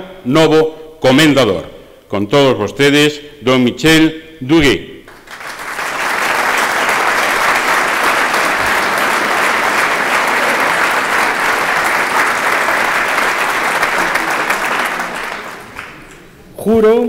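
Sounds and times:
audience applauding: 5.1 - 16.5.

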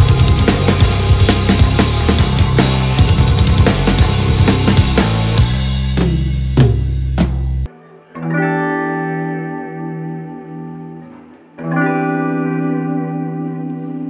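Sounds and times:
electric guitar chord: 0.0 - 6.6, 8.1 - 14.0
bass guitar note: 0.0 - 7.7
drum and cymbal hits: 0.0 - 7.7.

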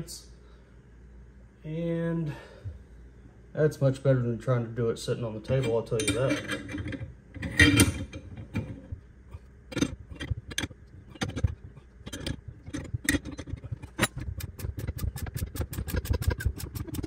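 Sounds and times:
metallic clank: 5.5 - 17.0.

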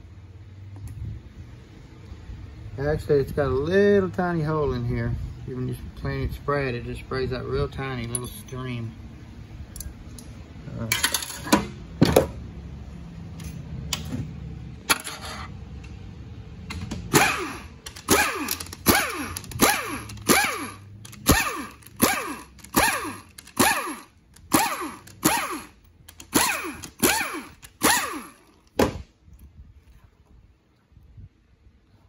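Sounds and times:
ratchet clicks: 16.7 - 28.5
pneumatic air ratchet bursts: 17.1 - 28.6.

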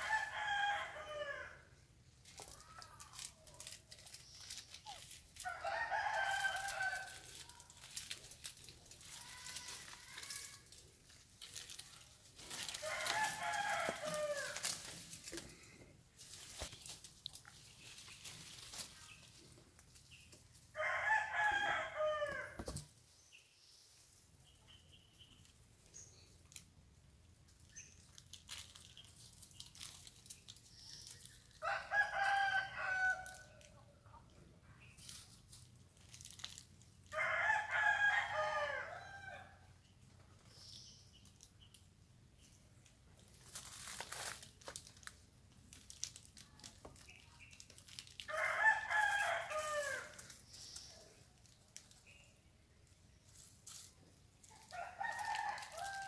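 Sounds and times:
rooster crowing: 0.0 - 1.6, 5.5 - 7.2, 12.8 - 14.6, 20.8 - 22.6, 31.6 - 33.4, 37.2 - 39.5, 48.3 - 50.2
faint clicks and rustles: 6.1 - 20.7.

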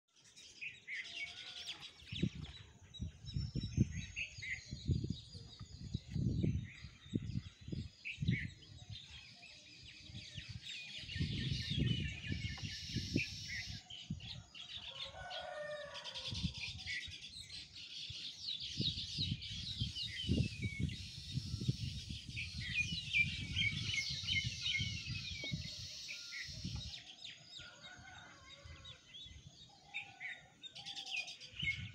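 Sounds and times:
small birds chirping: 0.2 - 31.9
wind rumble on microphone: 1.9 - 31.9
faint rooster crowing: 14.4 - 16.8, 27.6 - 29.0.

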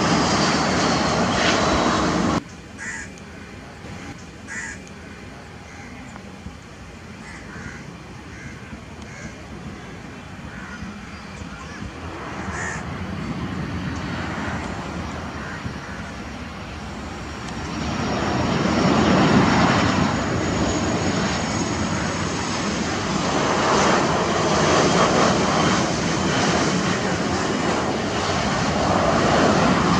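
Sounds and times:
jet airliner landing whoosh: 0.0 - 2.4, 17.2 - 29.9.

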